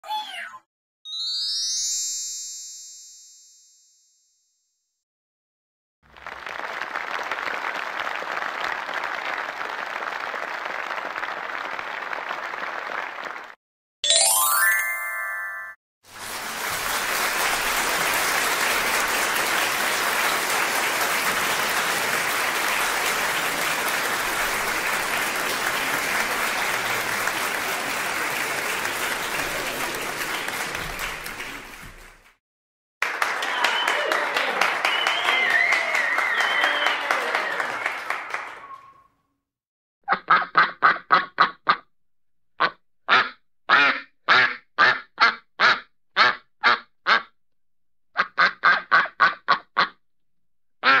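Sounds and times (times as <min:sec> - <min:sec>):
rising glissando of bell tones: 0:01.1 - 0:04.2, 0:14.0 - 0:15.8
audience applause: 0:06.1 - 0:13.6, 0:16.1 - 0:32.4, 0:33.0 - 0:39.0.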